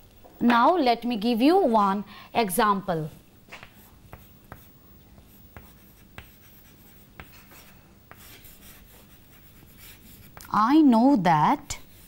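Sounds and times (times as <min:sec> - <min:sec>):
chalk tapping on blackboard: 0:03.5 - 0:10.5
chalk scratching on blackboard: 0:03.6 - 0:10.5, 0:11.6 - 0:12.0.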